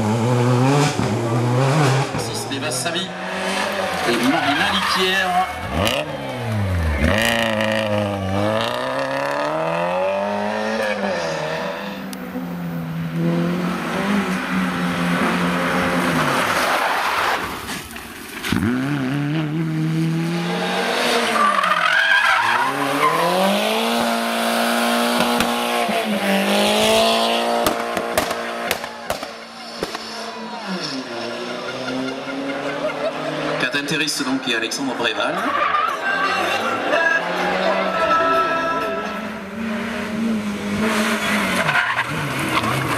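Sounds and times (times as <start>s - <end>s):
rally car engines revving: 0.0s - 42.9s
tyres squealing on tarmac: 3.8s - 9.0s, 21.2s - 23.5s, 34.9s - 39.4s, 41.2s - 42.9s.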